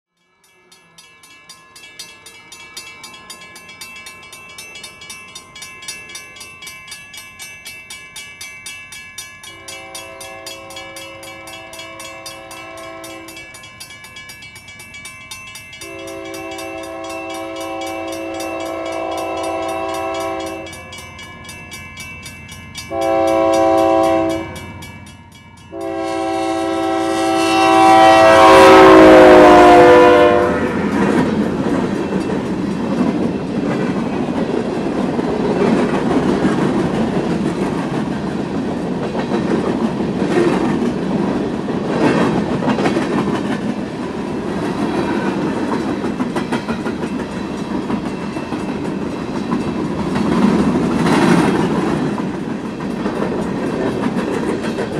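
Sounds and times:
railroad crossing bell ringing: 0:00.1 - 0:54.9
train passing: 0:00.2 - 0:54.9
locomotive horn blasts: 0:09.5 - 0:13.5, 0:15.8 - 0:21.0, 0:22.9 - 0:24.6, 0:25.7 - 0:30.9.

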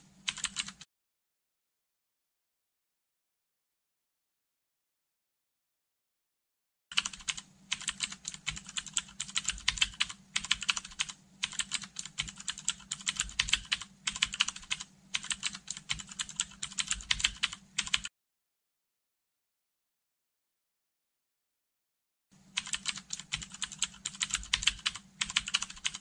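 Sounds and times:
computer keyboard typing: 0:00.3 - 0:00.8, 0:06.9 - 0:18.1, 0:22.6 - 0:26.0.

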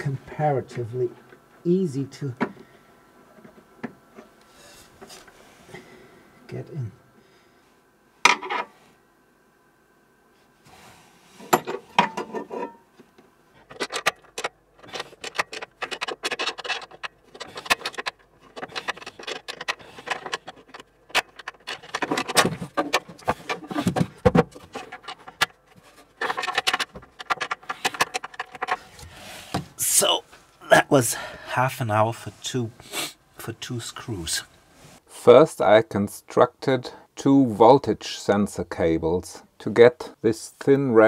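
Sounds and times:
clicks taps and rustling of hand work: 0:11.4 - 0:30.4.

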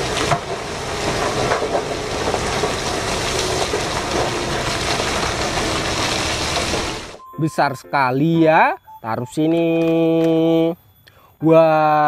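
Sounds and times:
rock and earth sliding: 0:00.0 - 0:07.2.

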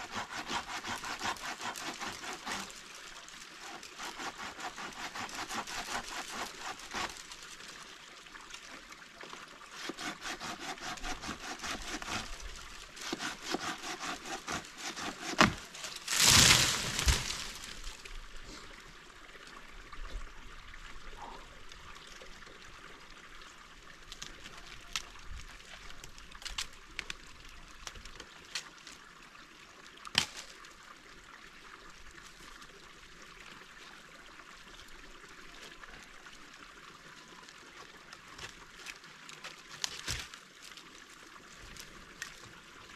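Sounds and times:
hand saw rasping on branch: 0:00.0 - 0:02.8, 0:03.6 - 0:07.3, 0:09.7 - 0:15.8
wood snapping and knocking: 0:15.0 - 0:17.4
branch crashing through twigs: 0:15.4 - 0:18.0.

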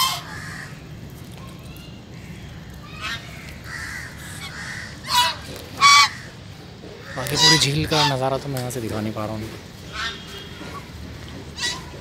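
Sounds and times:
geese honking: 0:00.0 - 0:00.8, 0:02.9 - 0:06.4, 0:07.0 - 0:08.4, 0:09.9 - 0:10.9, 0:11.5 - 0:12.0.

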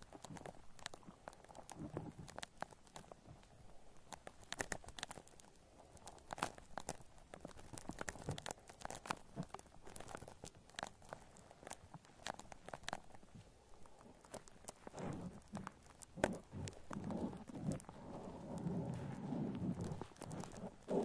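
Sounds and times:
shaving foam squished by hand: 0:14.3 - 0:21.0.

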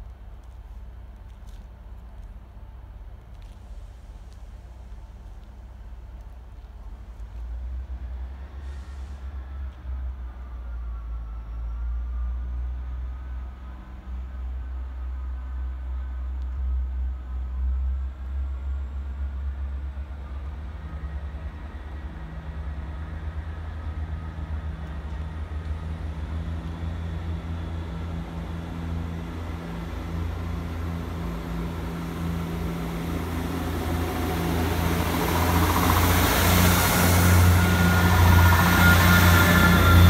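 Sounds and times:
diesel train engine drone: 0:00.0 - 0:40.0
wheels on rails: 0:32.6 - 0:40.0.

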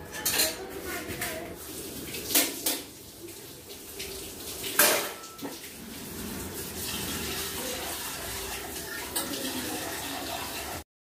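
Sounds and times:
steel utensils clattering: 0:00.0 - 0:01.2, 0:04.8 - 0:05.6
tap water running into sink: 0:00.3 - 0:10.8.

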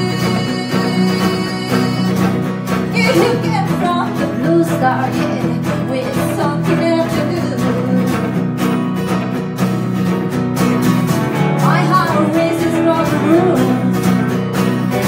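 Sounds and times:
woman singing: 0:00.0 - 0:08.5, 0:11.5 - 0:15.0
acoustic guitar strumming: 0:00.0 - 0:15.0
electric guitar: 0:00.0 - 0:15.0.

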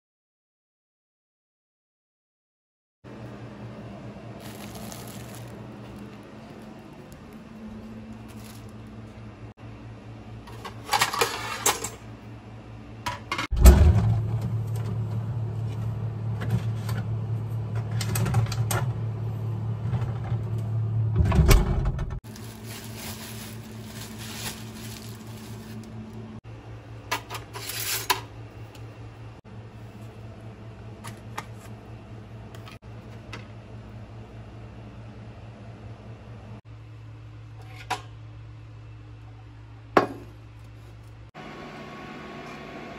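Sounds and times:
steady low hum: 0:03.1 - 0:21.2, 0:22.2 - 0:42.9
plastic packaging crinkling: 0:04.4 - 0:09.2, 0:22.2 - 0:26.3.

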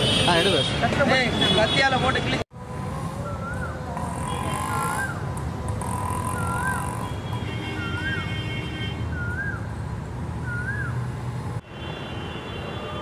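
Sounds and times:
low traffic rumble: 0:00.0 - 0:13.0.

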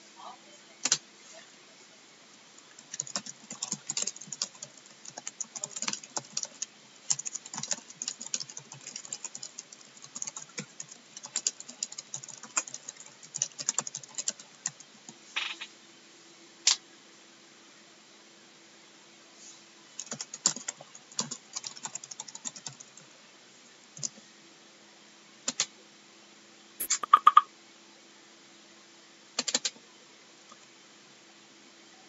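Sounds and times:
faint steady hum: 0:00.0 - 0:32.0
typing on keyboard: 0:02.7 - 0:15.6, 0:20.0 - 0:23.0, 0:29.4 - 0:29.8.

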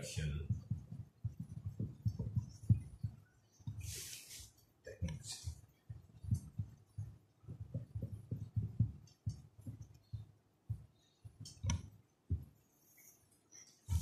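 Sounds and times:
marker pen knocking on whiteboard: 0:00.5 - 0:03.9, 0:05.0 - 0:12.5.

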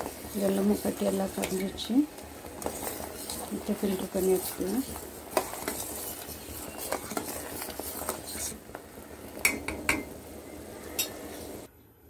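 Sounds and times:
syrup bubbling: 0:00.0 - 0:11.7
metal spoon clinking against pot: 0:10.9 - 0:11.2.

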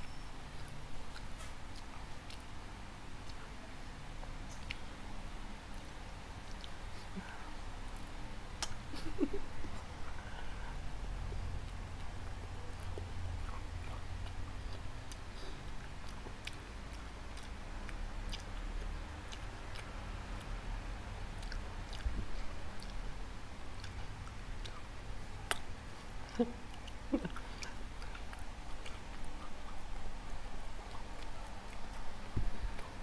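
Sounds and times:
close-up chewing: 0:00.1 - 0:02.6, 0:05.7 - 0:33.0
wet mouth clicks: 0:08.0 - 0:08.8, 0:25.5 - 0:33.0.

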